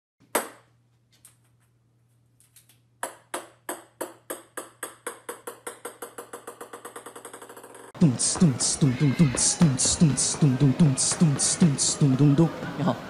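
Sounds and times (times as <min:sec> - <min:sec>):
ping-pong ball bouncing on wood: 0:03.0 - 0:07.9.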